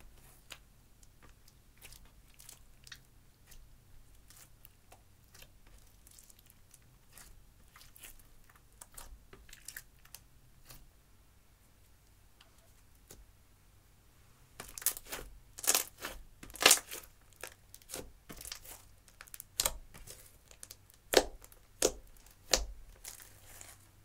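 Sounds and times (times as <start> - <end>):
slime squelching and popping: 14.6 - 23.7.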